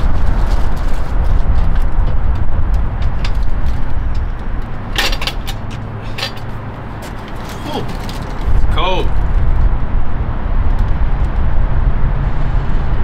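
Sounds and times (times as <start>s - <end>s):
hand truck metallic clatter: 3.0s - 8.5s
loud low rumble: 7.8s - 13.0s.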